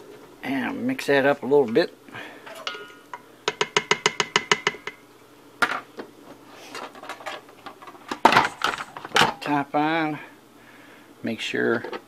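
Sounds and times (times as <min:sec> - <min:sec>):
ladle knocking against metal pot: 0:03.5 - 0:05.0.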